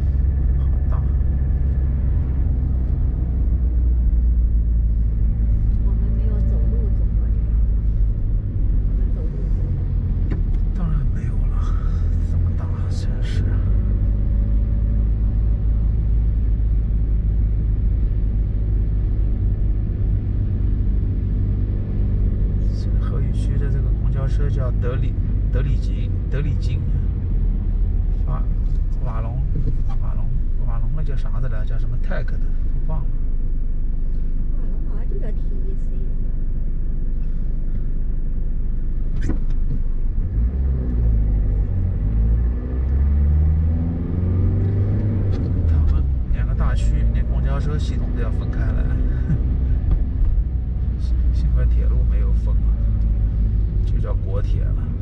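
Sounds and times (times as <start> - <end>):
car engine rumble: 0.0 - 55.0
tyres on wet road: 22.6 - 55.0.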